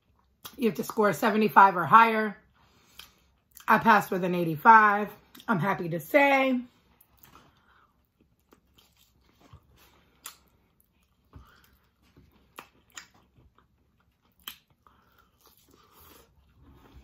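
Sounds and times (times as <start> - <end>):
chewing rib: 7.0 - 17.0
wet mouth smacks and clicks: 12.6 - 13.2, 14.4 - 14.7.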